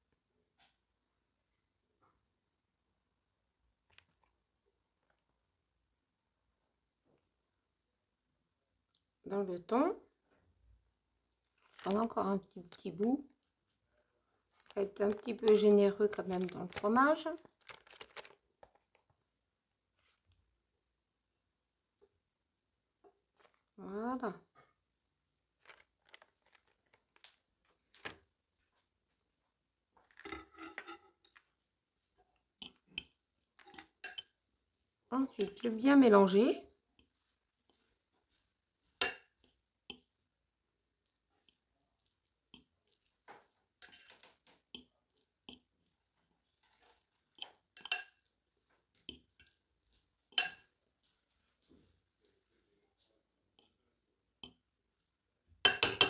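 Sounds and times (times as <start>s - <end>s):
food squishing: 11.5s - 12.8s, 14.5s - 19.0s, 25.6s - 28.2s, 29.9s - 36.4s, 37.0s - 52.2s
rustling: 11.5s - 12.8s, 14.5s - 19.1s, 25.5s - 36.4s, 37.0s - 56.0s
fork and bowl clinking: 30.1s - 31.4s, 32.6s - 34.4s, 35.4s - 35.7s, 39.0s - 39.3s, 43.8s - 44.2s, 46.9s - 48.3s, 50.3s - 50.7s, 55.7s - 56.0s.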